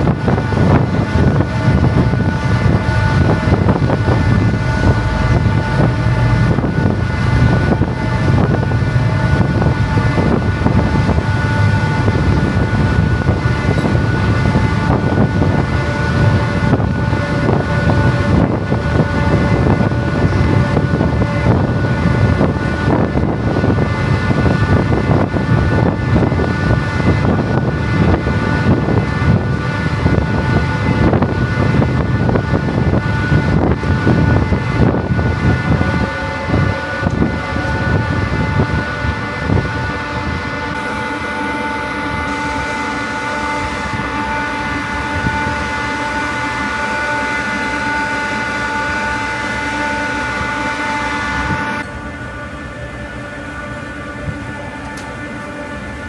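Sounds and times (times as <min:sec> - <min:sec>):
wind buffeting microphone: 0:00.0 - 0:51.9
boat engine rumble: 0:00.0 - 0:56.0
engine whine: 0:00.0 - 0:56.0.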